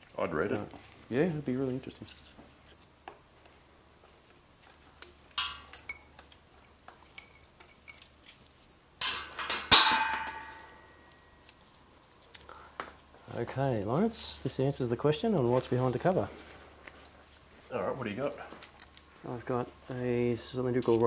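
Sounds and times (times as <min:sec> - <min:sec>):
metal clinks and taps: 0:04.6 - 0:08.1
ringing metallic clank: 0:09.0 - 0:11.4.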